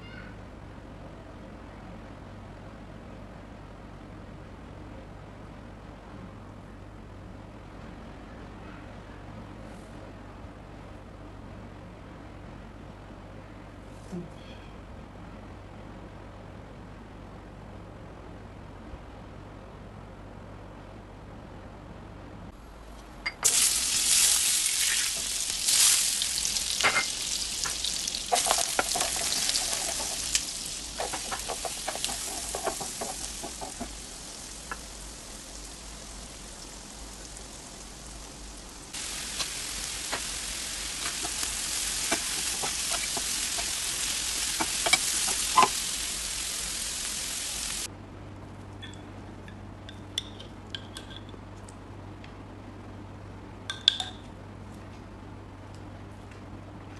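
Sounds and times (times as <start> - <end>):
vegetables sizzling in a frying pan: 23.4 - 47.9
stirring clicks and scrapes: 27.6 - 34.0, 41.0 - 45.8
faint clinks of dishes: 48.8 - 51.4.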